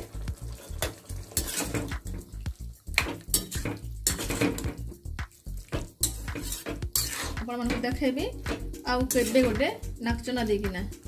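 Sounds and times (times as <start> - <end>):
spatula scraping metal pan: 0.5 - 2.2, 2.9 - 5.0, 5.7 - 9.9.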